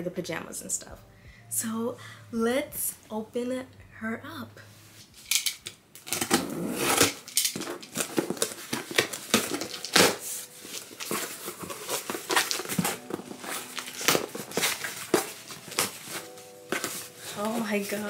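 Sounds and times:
cardboard box rustling and scraping: 0:07.8 - 0:18.0.

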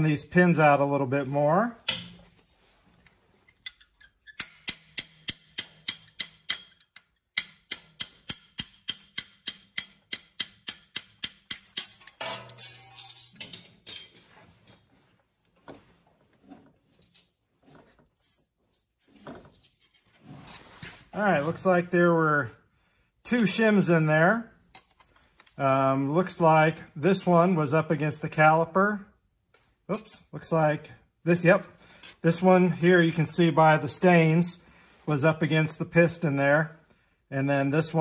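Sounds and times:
metal parts clicking: 0:03.0 - 0:07.5
hammer tapping metal punch: 0:04.3 - 0:12.6
metal scrape: 0:12.0 - 0:14.7, 0:16.4 - 0:21.7.

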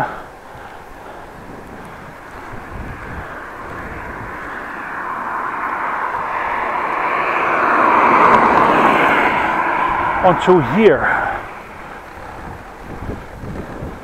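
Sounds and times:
car passing by: 0:00.0 - 0:14.0.

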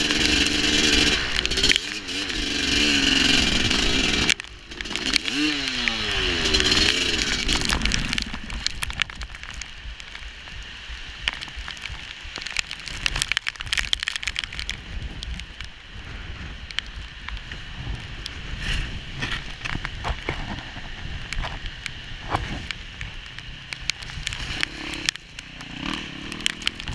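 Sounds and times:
dirt bike engine revving: 0:00.0 - 0:08.6, 0:24.4 - 0:26.9
crackling and sharp clicks: 0:00.0 - 0:15.8, 0:16.5 - 0:26.9.

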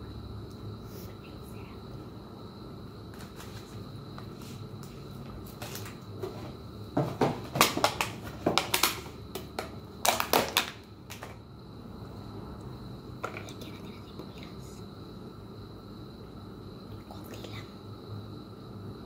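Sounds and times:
plastic container crackling: 0:07.0 - 0:11.4.

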